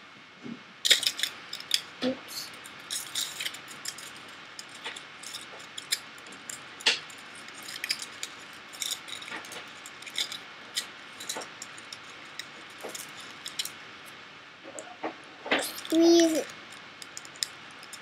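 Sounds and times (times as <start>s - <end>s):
aluminium foil crinkling: 0.8s - 13.8s, 15.6s - 18.0s.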